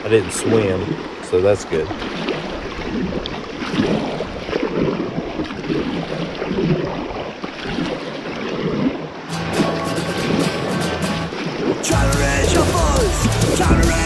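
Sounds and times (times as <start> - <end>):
paddle strokes splashing: 0.0 - 14.0
river water rushing: 0.0 - 14.0
music: 9.3 - 14.0.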